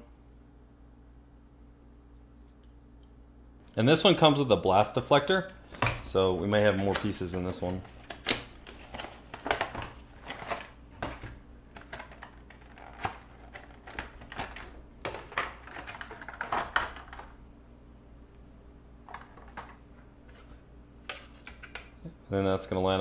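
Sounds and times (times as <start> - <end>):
plastic crinkling and clicking: 6.6 - 17.3.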